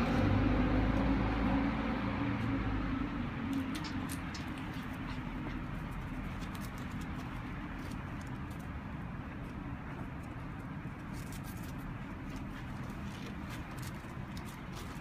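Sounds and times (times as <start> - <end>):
low outdoor background noise: 0.0 - 15.0
light ticks and patters: 3.5 - 15.0.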